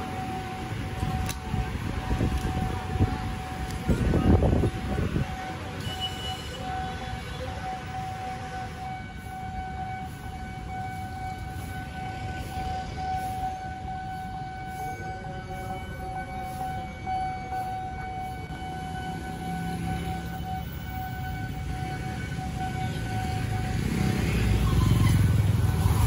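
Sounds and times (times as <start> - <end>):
street traffic rumbling: 0.0 - 26.0.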